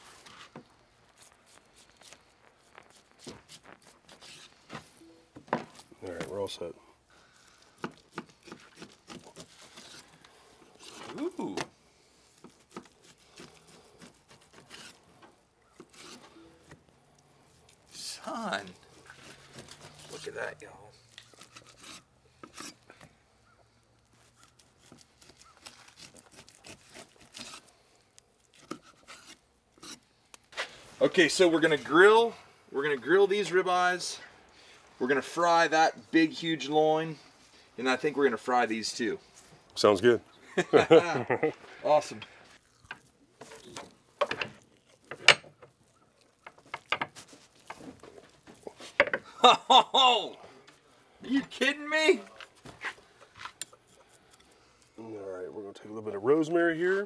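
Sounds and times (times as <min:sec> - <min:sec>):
knife scraping and tearing meat: 0:00.0 - 0:04.7, 0:07.4 - 0:31.9, 0:42.6 - 0:49.0, 0:52.4 - 0:55.0.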